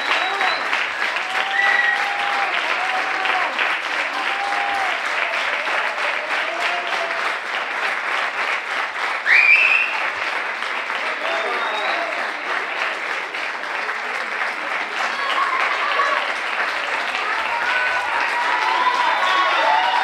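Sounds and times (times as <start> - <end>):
audience applause: 0.0 - 20.0.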